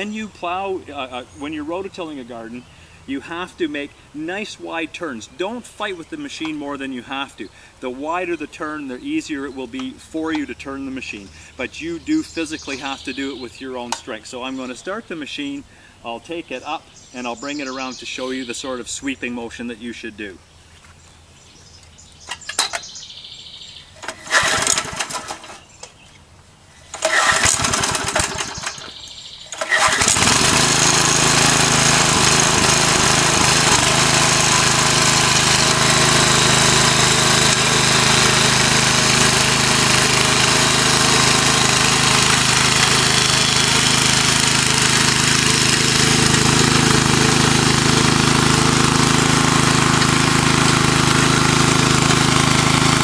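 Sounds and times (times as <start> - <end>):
engine starter pulls: 22.3 - 22.9, 24.0 - 25.7, 26.8 - 53.0
small gasoline engine running: 24.0 - 25.6, 26.9 - 53.0.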